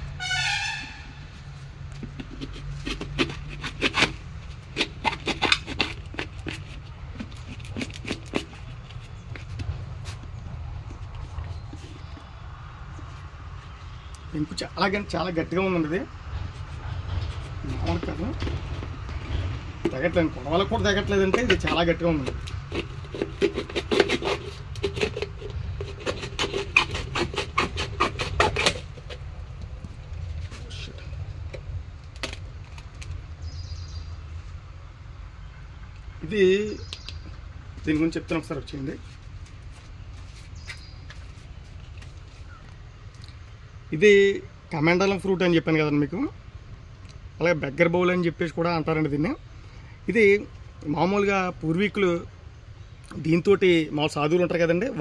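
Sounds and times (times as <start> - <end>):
sickle blade scraping hard shell: 2.2 - 9.5, 21.3 - 29.2.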